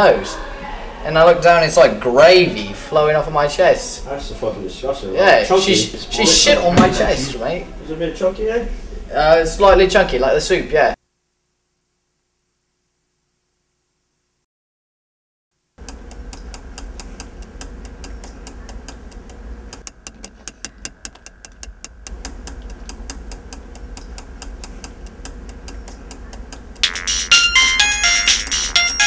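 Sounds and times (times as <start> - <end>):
low room hum: 0.0 - 14.4, 15.8 - 29.0
phone ringtone: 26.8 - 29.0.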